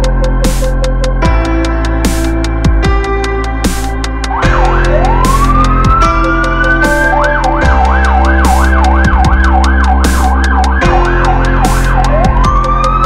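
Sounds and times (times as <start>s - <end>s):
electronic music with heavy beat: 0.0s - 13.0s
siren wailing and yelping: 4.3s - 13.0s.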